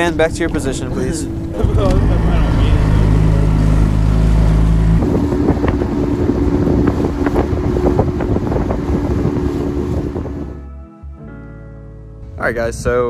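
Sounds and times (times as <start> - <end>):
wind buffeting microphone: 0.0 - 10.6
outboard motor drone: 0.0 - 10.8
hull slapping on waves: 1.3 - 10.5.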